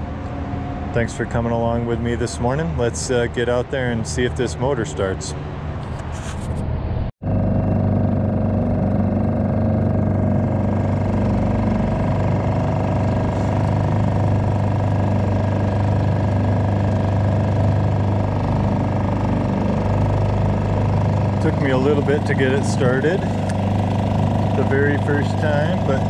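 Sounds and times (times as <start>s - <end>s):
outboard motor running: 7.2s - 26.0s.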